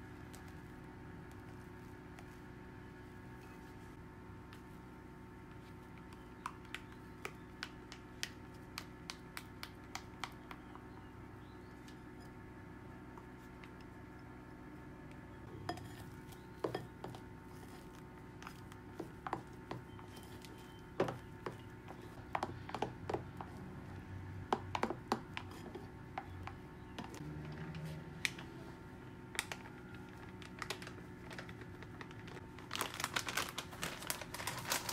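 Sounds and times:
spatula tapping bowls: 18.9 - 20.2, 20.9 - 23.6, 24.5 - 27.2.

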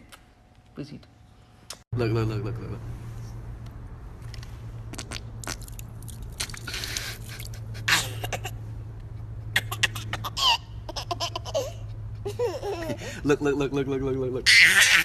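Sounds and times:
toddler giggling: 9.5 - 13.1
man laughing: 12.2 - 13.2.

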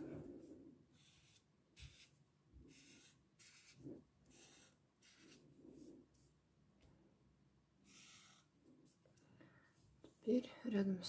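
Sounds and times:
marker scratching on paper: 1.0 - 6.3, 7.9 - 8.5.

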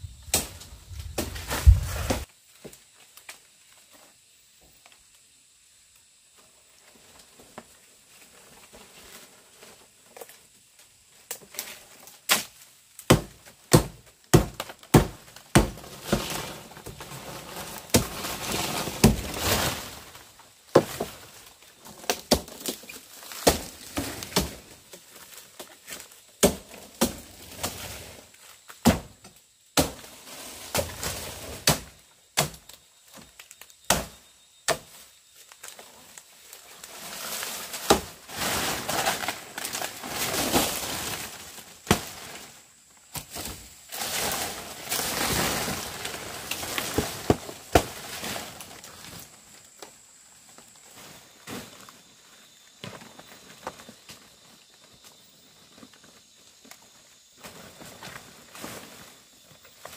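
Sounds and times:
blade chopping bamboo: 13.1 - 16.3.

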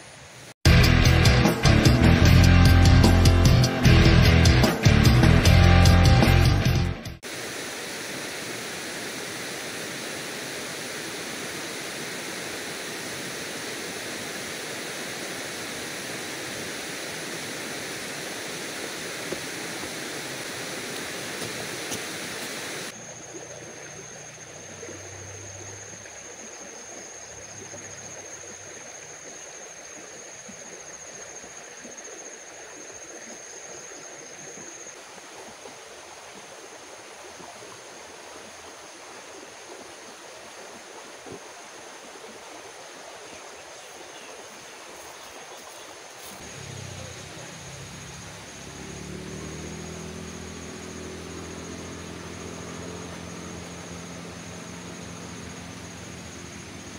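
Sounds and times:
river rushing: 7.2 - 23.8, 35.4 - 56.9.

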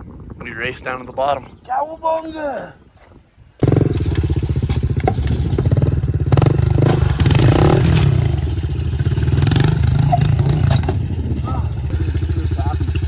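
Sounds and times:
dirt bike engine idling: 3.6 - 13.0.

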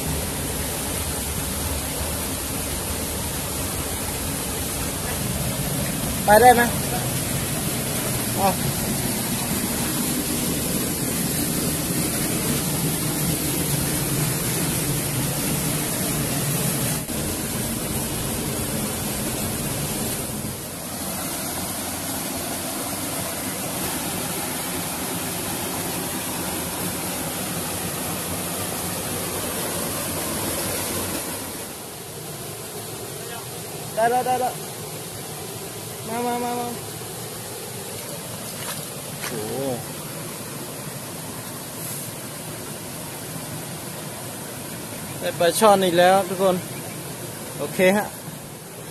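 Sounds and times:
waterfall rushing water: 0.0 - 48.9.

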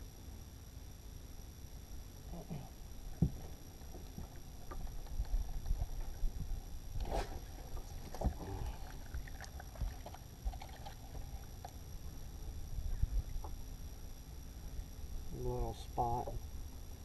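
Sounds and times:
boat engine rumbling: 3.2 - 11.7.

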